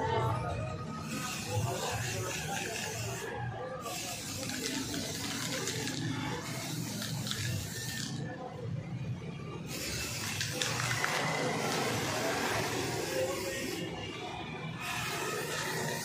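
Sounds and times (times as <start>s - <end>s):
spray paint can hissing: 1.0s - 8.2s, 9.7s - 14.0s, 14.8s - 16.0s.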